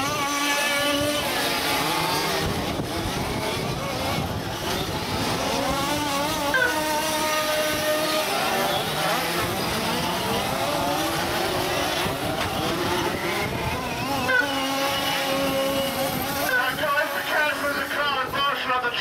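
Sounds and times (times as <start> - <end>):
small engines revving: 0.0 - 18.9.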